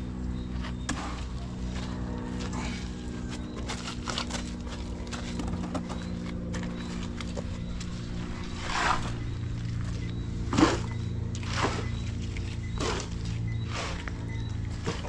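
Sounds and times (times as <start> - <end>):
steady low hum: 0.0 - 15.0
footsteps on gravel: 0.6 - 15.0
shovels scraping in gravel: 8.2 - 14.1.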